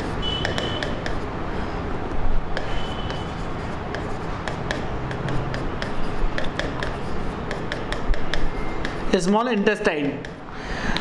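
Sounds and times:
pen tapping and scraping on screen: 0.0s - 1.3s, 2.5s - 9.3s, 10.1s - 10.4s.

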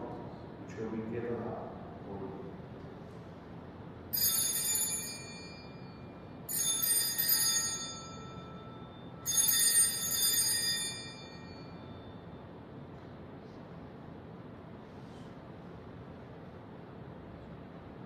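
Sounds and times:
altar bells ringing: 4.1s - 12.3s.

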